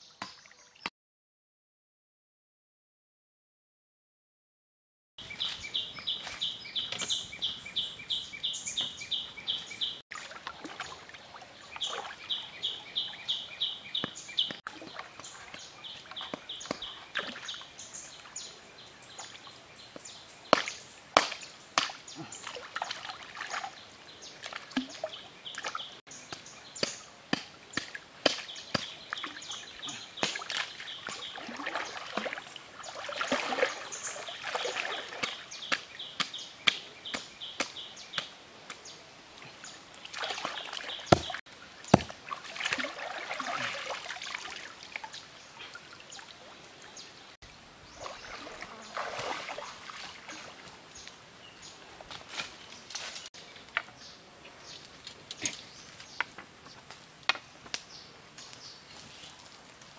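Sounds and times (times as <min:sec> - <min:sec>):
water splashing and sloshing: 0:08.7 - 0:54.0.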